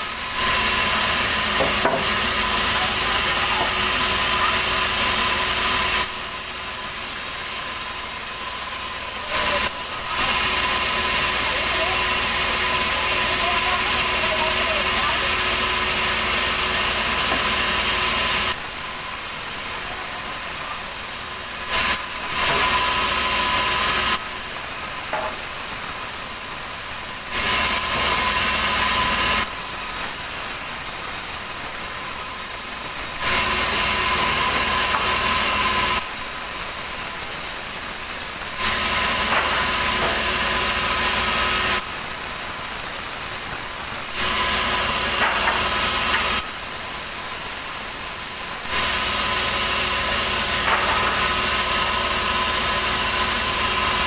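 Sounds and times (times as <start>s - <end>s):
band saw cutting wood: 0.0s - 18.7s, 21.4s - 24.3s, 27.3s - 30.2s, 33.1s - 36.2s, 38.4s - 41.9s, 44.0s - 46.6s, 48.7s - 54.0s
band saw running idle: 0.0s - 54.0s.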